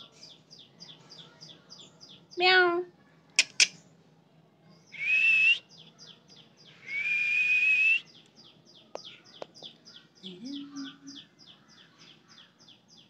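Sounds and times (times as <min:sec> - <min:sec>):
sharp clicks: 0:03.4 - 0:03.8
person whistling: 0:06.9 - 0:08.0
small bird chirping: 0:08.0 - 0:13.0.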